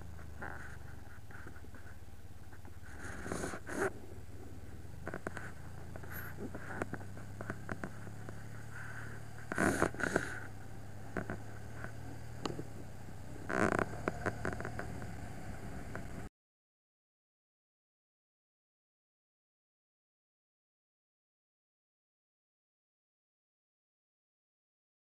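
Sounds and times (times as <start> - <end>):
engine idling: 0.0 - 16.3.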